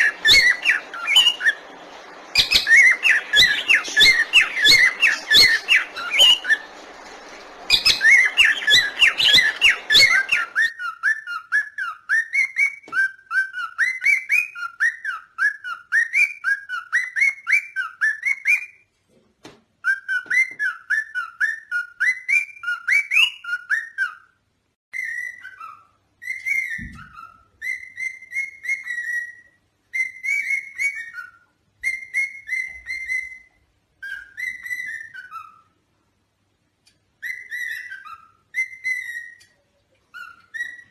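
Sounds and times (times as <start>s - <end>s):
lovebird rapid chirping: 0.0s - 18.5s, 37.2s - 39.5s.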